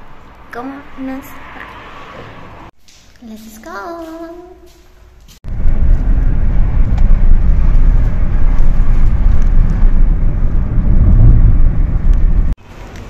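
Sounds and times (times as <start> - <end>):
car cabin road noise: 5.4 - 13.0.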